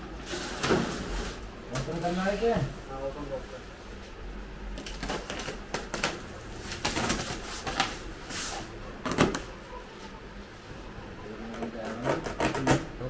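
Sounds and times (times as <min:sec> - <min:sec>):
packing ripping: 0:04.8 - 0:07.9
plastic wrap rustling and crinkling: 0:04.8 - 0:09.5.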